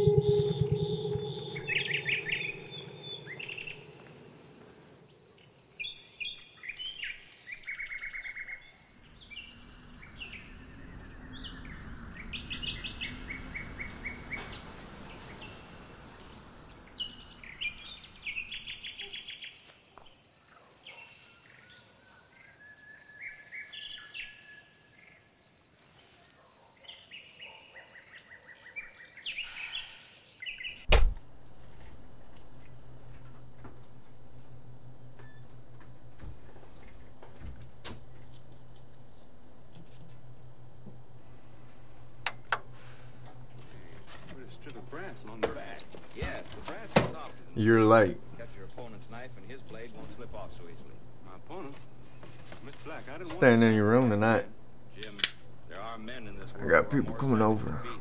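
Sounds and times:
birds chirping in trills: 0.0 - 19.7
high insect drone: 0.0 - 26.1, 29.0 - 58.0
loud thump: 30.9 - 31.2.

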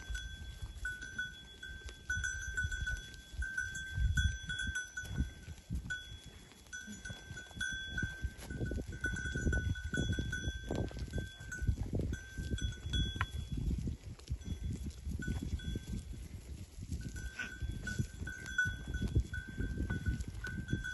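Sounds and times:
goat bells clinking: 0.0 - 20.9.

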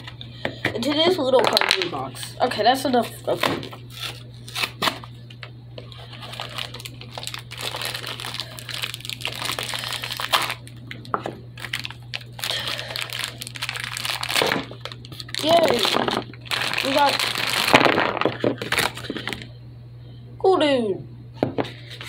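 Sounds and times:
low electrical hum: 0.0 - 22.0
cardboard and paper crinkling: 5.8 - 11.0, 11.6 - 19.5.

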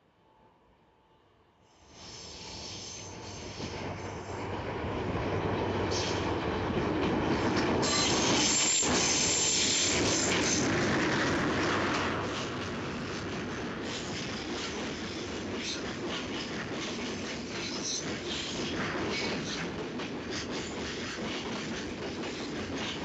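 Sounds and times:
freight train passing: 1.6 - 23.0
train wheels squealing: 1.8 - 4.5, 5.9 - 6.3, 7.8 - 10.7, 13.8 - 23.0.

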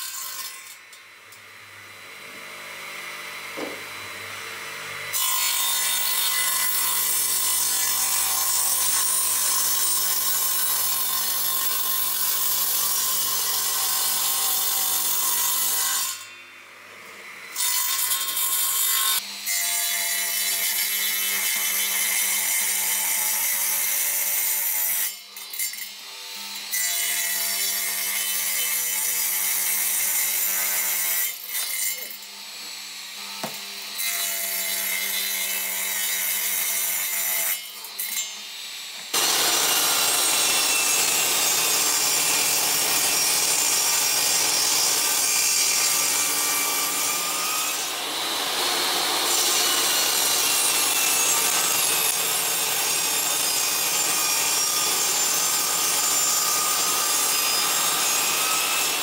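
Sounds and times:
radial arm saw cutting wood: 0.0 - 59.0
table saw ripping wood: 3.3 - 4.4, 5.0 - 16.3, 26.5 - 59.0.

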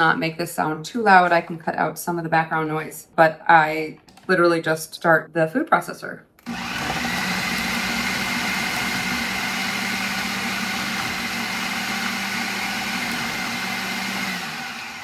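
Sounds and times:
food processor motor whining: 6.4 - 15.0.

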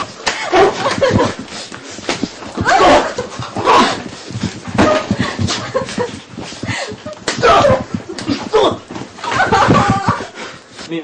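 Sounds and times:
people yelling and crying out: 2.6 - 4.1, 7.3 - 10.4.

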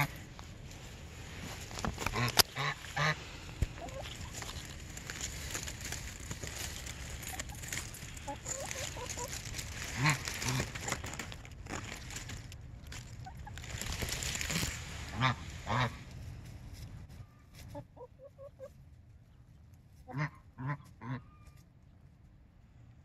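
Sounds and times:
chickens clucking softly: 2.0 - 4.7, 8.2 - 10.7, 17.1 - 21.7
chickens squawking: 2.0 - 11.3, 13.1 - 16.1, 17.2 - 18.8.

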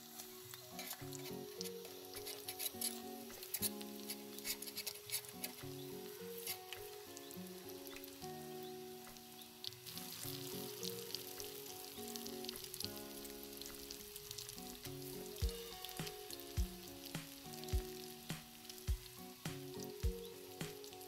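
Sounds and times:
background music with held notes: 0.0 - 21.0
batter sizzling in hot oil: 0.0 - 21.0
low thumping beat: 15.4 - 16.8, 17.7 - 19.1.

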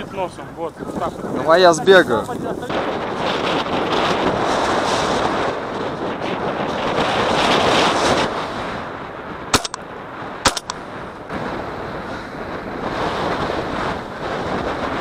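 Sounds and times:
wind buffeting microphone: 0.0 - 15.0
sharp bangs: 9.6 - 9.8, 10.4 - 10.8.

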